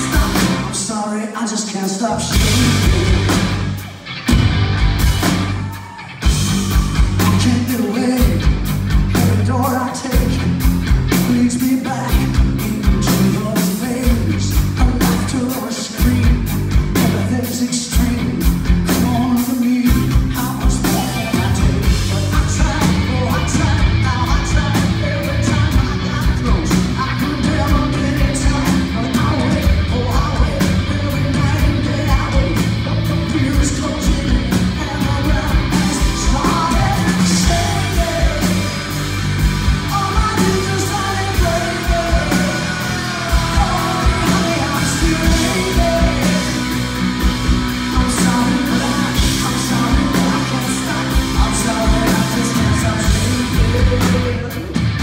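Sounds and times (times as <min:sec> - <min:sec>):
drums: 0:00.0 - 0:55.0
electric guitar: 0:02.0 - 0:55.0.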